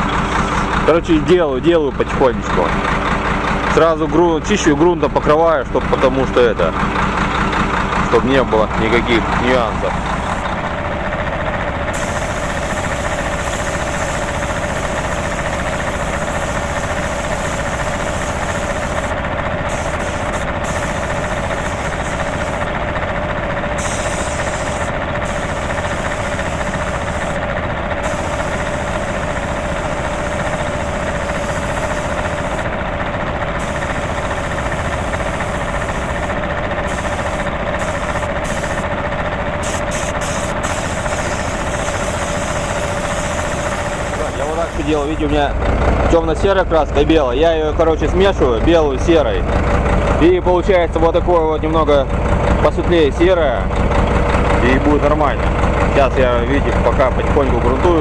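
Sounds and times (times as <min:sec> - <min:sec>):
air compressor humming: 0:00.0 - 0:58.0
spray gun hissing: 0:11.9 - 0:19.1, 0:19.7 - 0:22.7, 0:23.8 - 0:27.4, 0:28.0 - 0:32.6, 0:33.6 - 0:38.8, 0:39.6 - 0:45.2.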